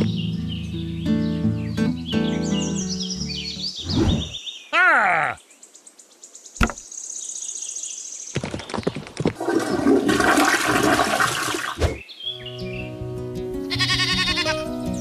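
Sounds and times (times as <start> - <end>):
toilet flush water rushing: 9.4 - 11.8.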